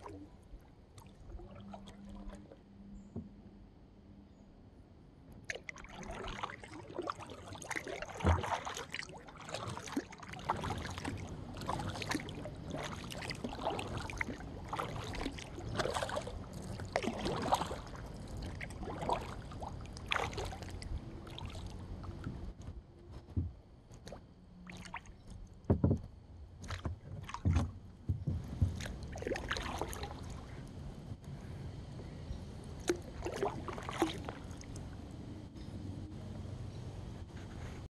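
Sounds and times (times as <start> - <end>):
paddle splashing water: 0.0 - 2.6, 5.4 - 22.6, 23.2 - 26.0, 26.6 - 30.8, 32.7 - 35.1
dull thumps: 25.6 - 28.9.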